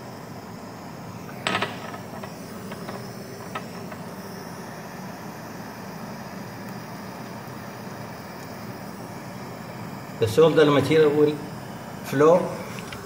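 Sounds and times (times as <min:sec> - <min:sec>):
gas torch hissing: 0:00.0 - 0:13.0.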